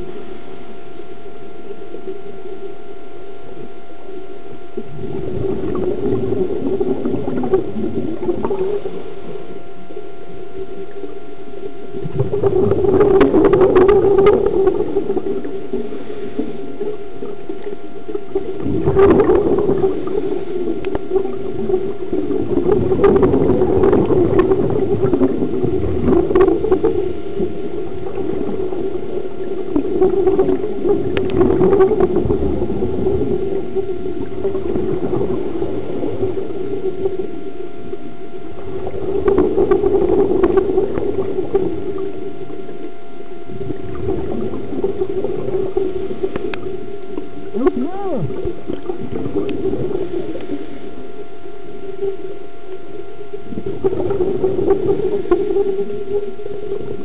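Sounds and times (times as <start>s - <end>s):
regulator exhale bubbles underwater: 0.0s - 57.0s
steady hum: 0.0s - 57.0s.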